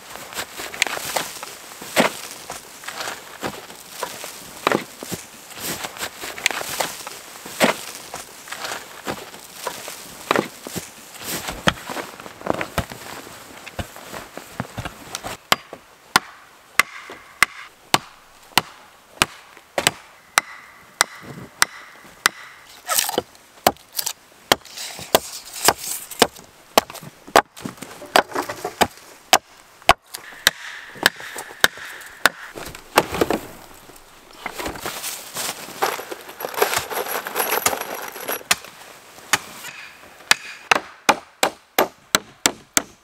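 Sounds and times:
axe chopping wood: 15.5s - 33.6s, 39.3s - 43.0s.

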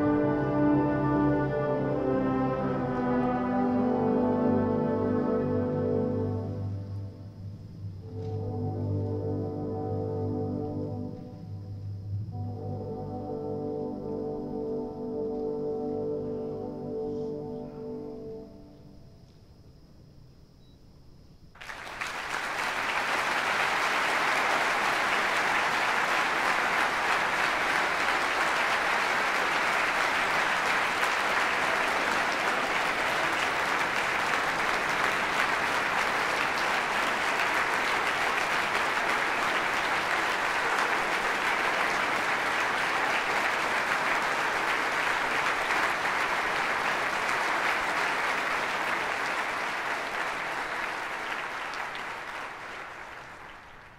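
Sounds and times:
audience applauding: 21.6s - 53.9s.

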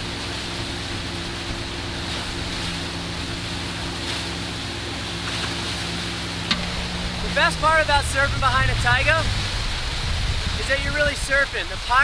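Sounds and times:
boat engine droning: 0.0s - 12.0s
churning wake water: 0.0s - 12.0s
wind: 0.0s - 12.0s.

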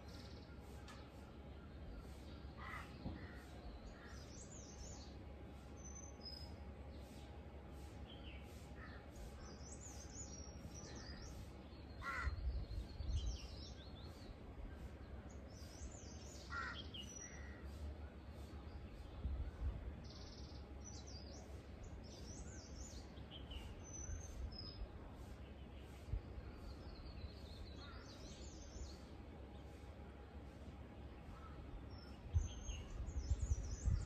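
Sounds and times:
small birds chirping: 0.0s - 34.0s
crow cawing: 2.6s - 3.5s, 12.0s - 12.4s, 16.5s - 16.8s.

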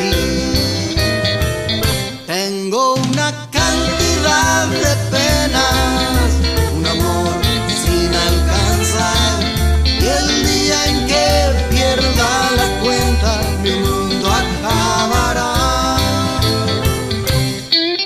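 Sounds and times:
country band playing: 0.0s - 18.0s.

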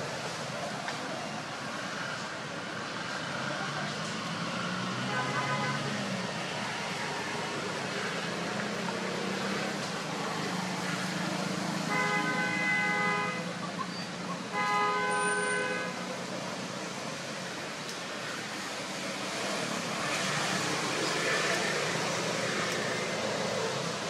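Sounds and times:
low hum of traffic: 0.0s - 24.0s
vehicle horn honking: 5.0s - 5.9s, 11.9s - 13.5s, 14.5s - 16.0s.

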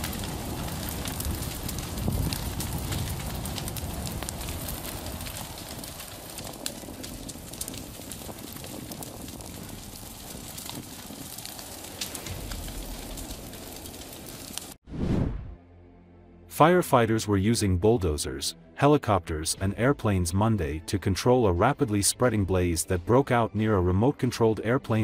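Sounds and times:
fire crackling and popping: 0.0s - 15.4s
rushing flames: 0.0s - 15.6s.

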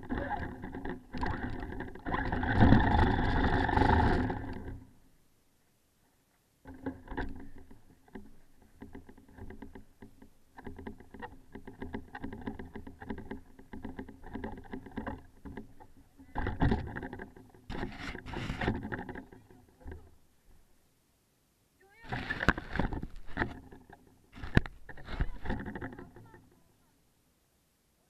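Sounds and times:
rushes of noise: 0.0s - 4.9s
toy truck drivetrain clicking: 0.0s - 4.9s.

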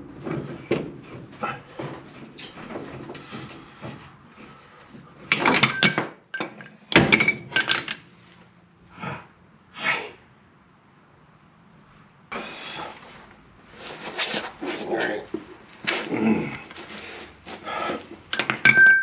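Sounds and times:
metal parts clinking and clanking: 5.2s - 8.1s, 18.2s - 19.0s.

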